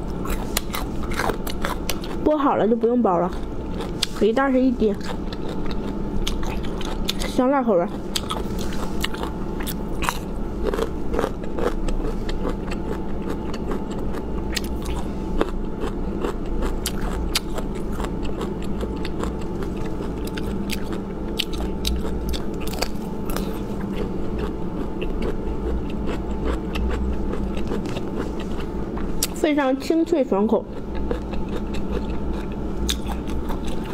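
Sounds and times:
chewing crunchy food: 0.0s - 33.9s
steady low hum: 0.0s - 33.9s.

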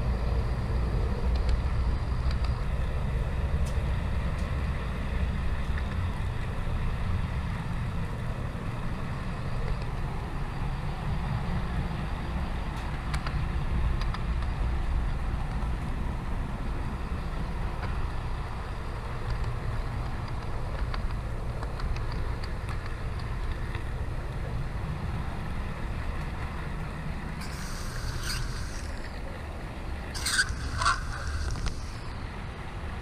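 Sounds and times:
model train rumble: 27.3s - 32.1s.

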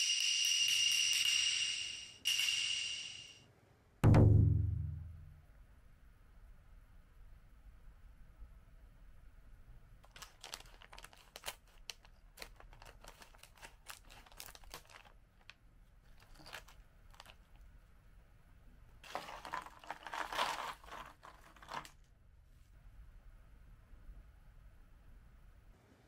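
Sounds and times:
plastic snack bag crinkling: 10.0s - 17.7s, 19.0s - 22.0s
rice crackers poured onto plate: 19.0s - 22.0s.

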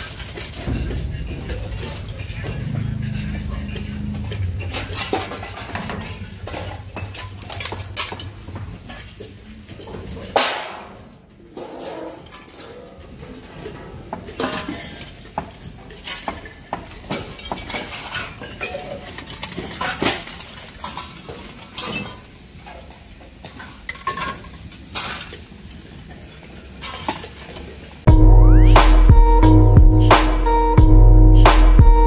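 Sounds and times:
scrap metal clanking: 0.0s - 22.3s.

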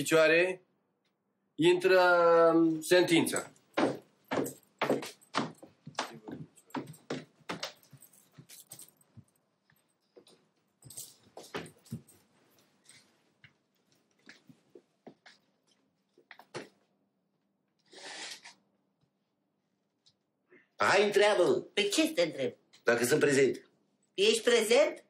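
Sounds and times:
footsteps and shuffling: 3.2s - 16.9s.

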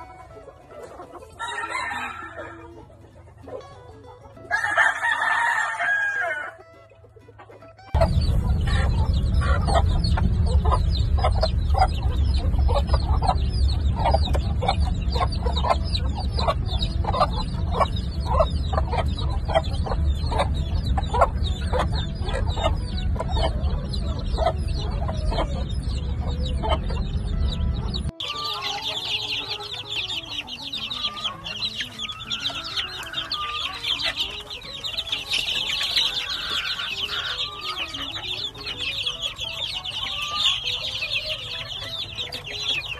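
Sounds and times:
chicks peeping: 0.0s - 42.9s
dense chorus of chicks peeping: 0.0s - 42.9s
hen clucking: 0.0s - 42.9s
heavy low rumble: 8.0s - 28.1s.

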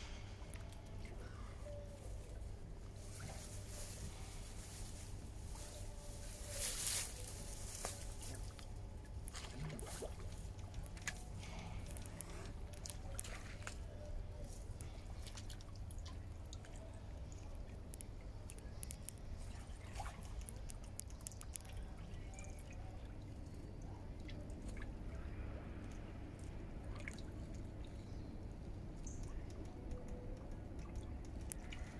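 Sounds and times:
water drips and splashes: 6.6s - 25.2s, 25.8s - 28.0s, 28.6s - 31.9s.

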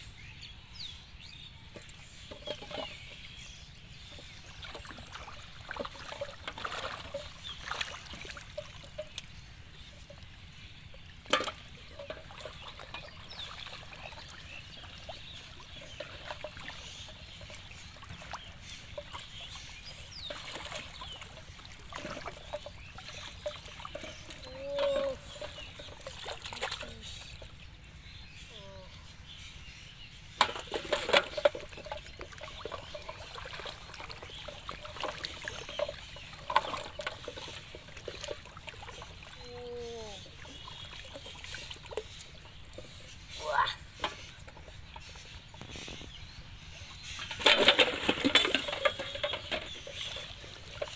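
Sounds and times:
water sloshing and trickling: 0.7s - 50.9s
sharp splashes: 4.6s - 9.2s.

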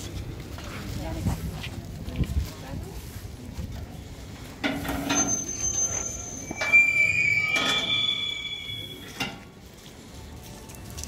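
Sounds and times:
roasting spit crank squealing: 4.8s - 9.2s.

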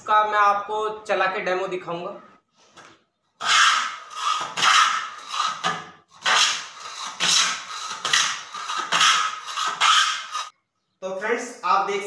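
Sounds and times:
hand plane shaving wood: 3.4s - 10.5s.

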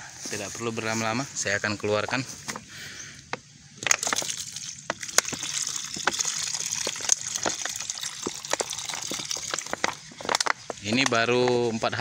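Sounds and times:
liquid pouring into bucket: 3.8s - 10.5s.

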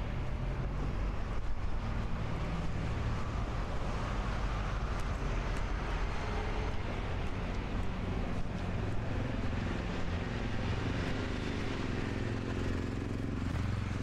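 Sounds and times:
street traffic rumble: 0.0s - 14.0s.

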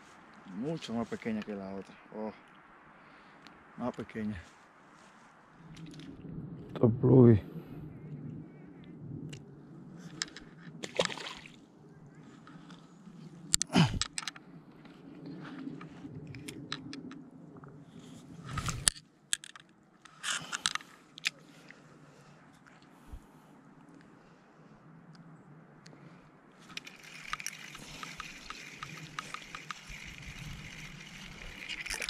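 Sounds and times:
small clicks: 26.6s - 32.0s.

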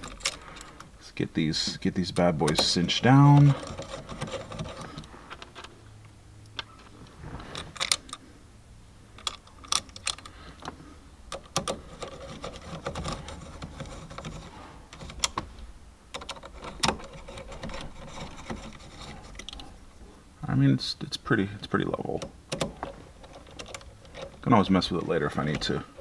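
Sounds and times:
light metal scraping: 16.4s - 20.2s.

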